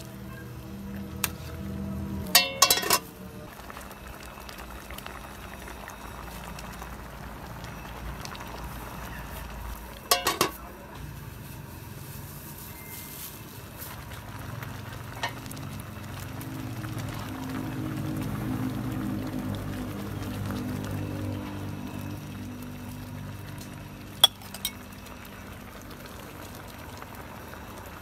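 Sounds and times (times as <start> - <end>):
soup bubbling in pot: 0.0 - 28.0
metal pot lid clinks: 2.4 - 3.1, 10.1 - 10.6, 24.2 - 24.8.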